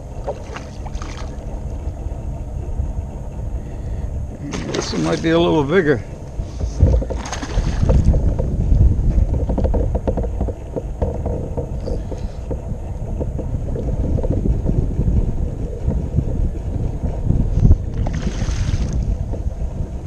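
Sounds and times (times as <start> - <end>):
water splashing against hull: 0.0 - 2.2, 4.3 - 14.5, 17.5 - 20.0
wind noise on microphone: 0.0 - 20.0
fish thrashing in water: 0.2 - 1.6, 4.4 - 5.7, 6.6 - 8.2, 18.0 - 19.0.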